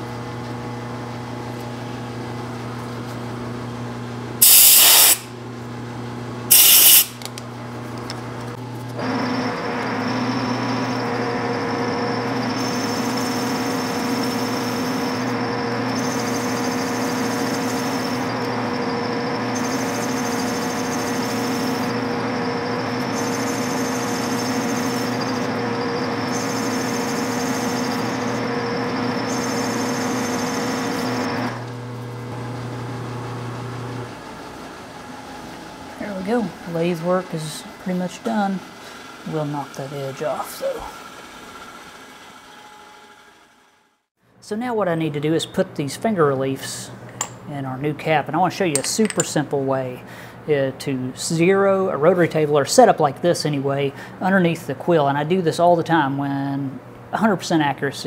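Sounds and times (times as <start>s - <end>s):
compressed air blasts: 4.4s - 5.3s, 6.5s - 7.3s
high hiss: 4.4s - 5.3s, 6.5s - 7.2s
metal lathe running: 9.0s - 34.1s, 34.7s - 44.0s.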